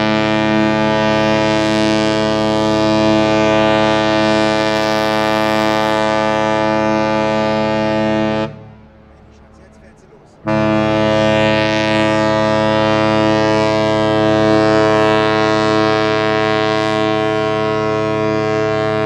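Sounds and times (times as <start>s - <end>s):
ship's horn blast: 0.0s - 19.0s.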